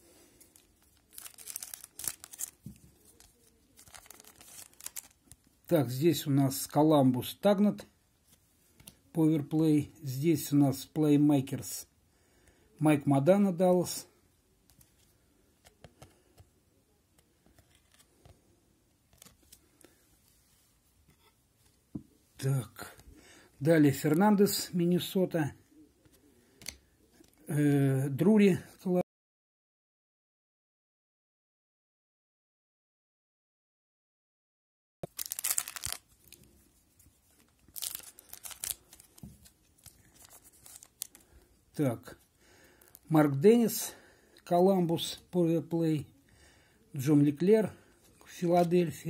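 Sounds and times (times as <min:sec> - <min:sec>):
foil wrapper tearing and crinkling: 0:00.6 - 0:05.5, 0:35.0 - 0:36.5, 0:37.4 - 0:41.3.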